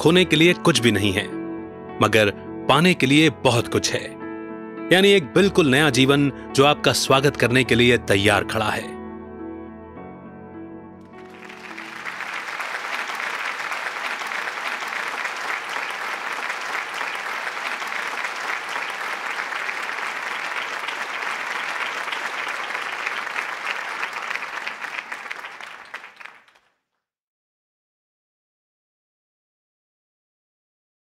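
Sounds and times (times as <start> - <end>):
soft background music: 0.0 - 12.4
crowd applause: 11.2 - 26.6.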